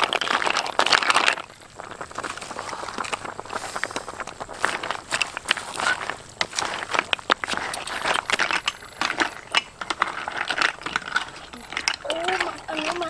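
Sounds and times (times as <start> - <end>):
steady frying hiss: 0.0 - 13.0
snail shells clinking on metal wok: 3.0 - 13.0.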